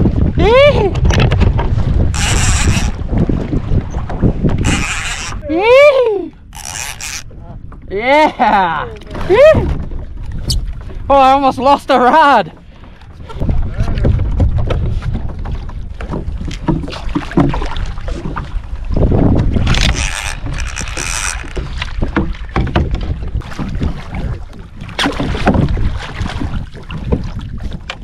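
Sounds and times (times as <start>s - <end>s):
water splashing: 0.0s - 7.4s, 8.9s - 28.0s
wind buffeting microphone: 0.0s - 28.0s
gear knocking against hull: 13.4s - 24.6s.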